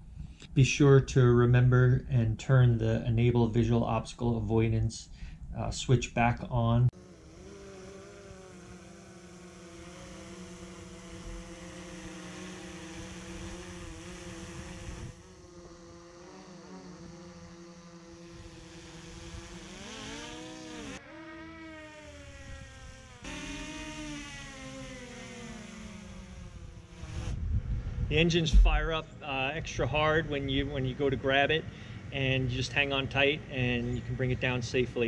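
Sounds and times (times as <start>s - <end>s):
drone propellers buzzing: 6.9s - 28.9s.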